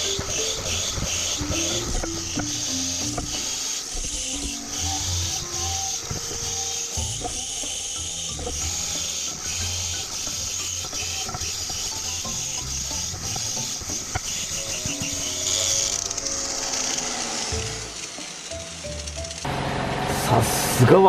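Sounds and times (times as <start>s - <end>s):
wire brush grinding on metal: 0.0s - 19.5s.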